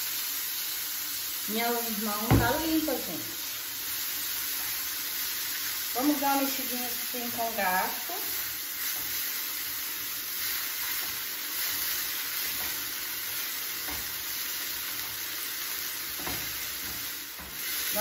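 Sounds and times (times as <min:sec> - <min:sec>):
greens frying in oil: 0:00.0 - 0:18.0
fork knocking on pan: 0:16.2 - 0:17.7.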